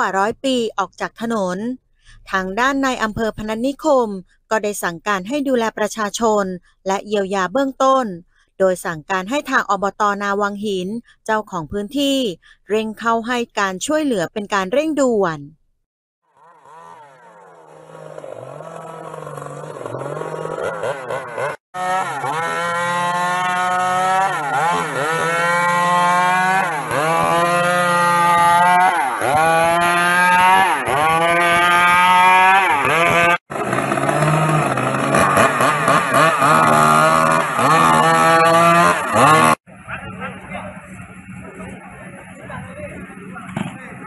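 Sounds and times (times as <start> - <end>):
chainsaw cutting wood: 16.3 - 39.6.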